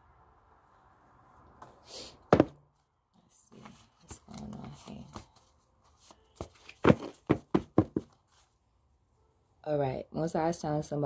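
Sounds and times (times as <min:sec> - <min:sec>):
cards rustling: 0:03.5 - 0:08.4.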